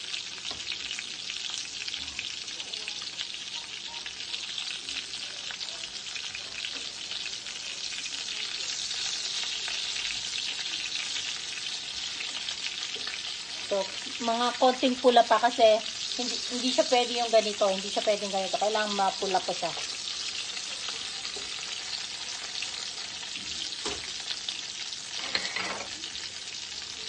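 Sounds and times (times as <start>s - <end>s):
chicken frying in oil: 0.0s - 27.0s.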